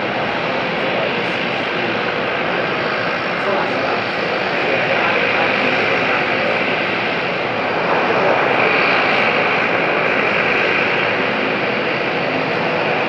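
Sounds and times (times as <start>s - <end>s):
jet engines rushing hum and whine: 0.0s - 13.0s.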